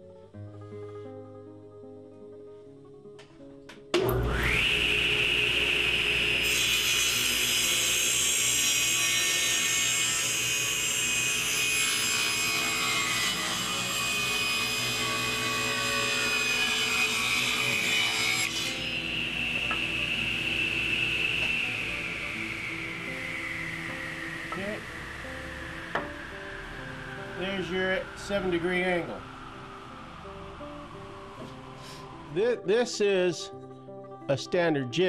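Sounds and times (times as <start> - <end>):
table saw motor whine: 4.0 - 32.7
saw blade cutting wood: 4.3 - 25.2.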